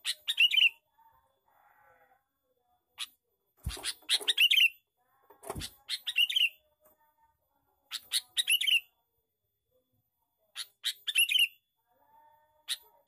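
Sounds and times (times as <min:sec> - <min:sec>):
bird singing chattering song: 0:00.0 - 0:00.8, 0:03.7 - 0:04.8, 0:05.5 - 0:06.6, 0:07.9 - 0:08.9, 0:10.6 - 0:11.6.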